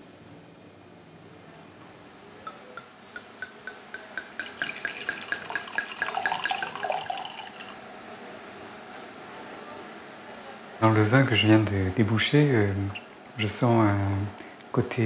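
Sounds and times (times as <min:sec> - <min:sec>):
wine glugging into a glass: 0:03.4 - 0:07.8.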